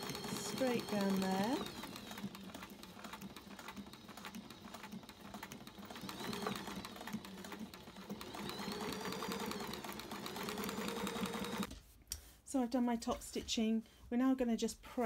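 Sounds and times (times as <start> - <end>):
sewing machine stitching: 0.0 - 11.7.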